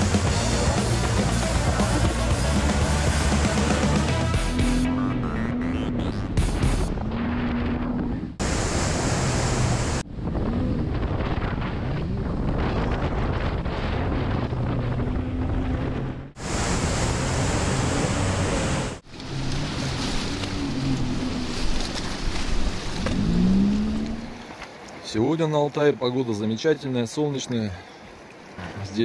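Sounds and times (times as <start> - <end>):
rushing river water: 0.0 - 5.9, 8.4 - 10.0, 16.3 - 29.0
boat motor running: 0.0 - 10.6
wind buffeting microphone: 9.5 - 18.8.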